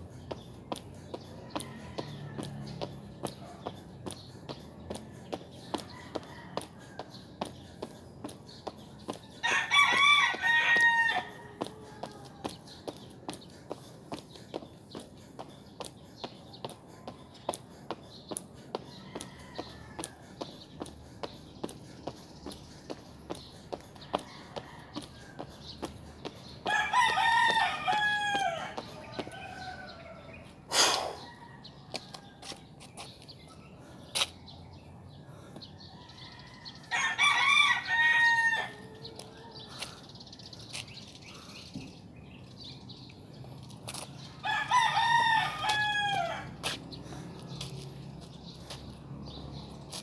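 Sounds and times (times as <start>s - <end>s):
rooster crowing: 5.8s - 7.1s, 9.4s - 12.5s, 26.7s - 30.4s, 36.0s - 39.6s, 44.4s - 46.5s.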